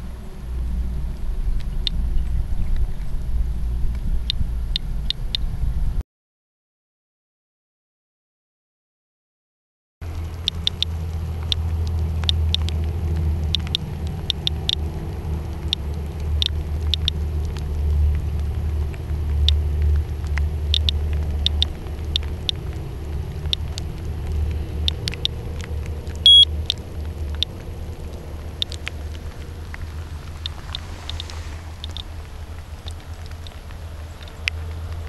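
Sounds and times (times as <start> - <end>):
low rumble: 0.0 - 6.0, 10.0 - 35.0
geiger counter clicking: 10.1 - 14.9, 15.5 - 18.2, 19.3 - 22.8, 23.4 - 27.7, 28.5 - 29.2, 30.4 - 32.1
short high beep: 26.3 - 26.5.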